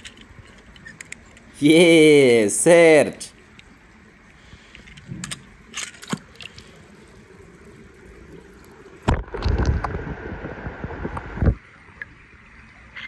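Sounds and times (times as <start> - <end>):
water splashing and sloshing: 3.3 - 12.8.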